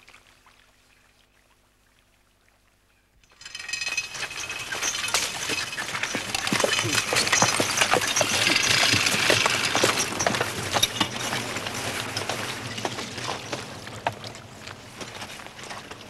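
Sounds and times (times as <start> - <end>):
horse harness clinking: 3.2 - 16.0
hooves knocking: 3.3 - 16.0.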